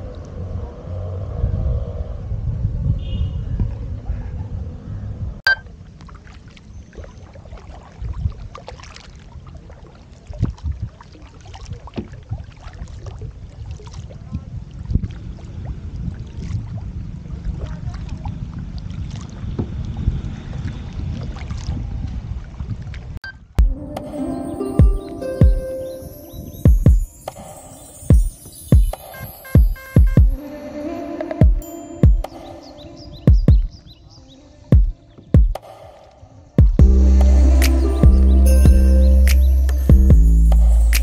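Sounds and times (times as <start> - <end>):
wind rumble on microphone: 0.0 - 6.1, 7.6 - 23.2
paddle splashing in water: 5.6 - 23.2.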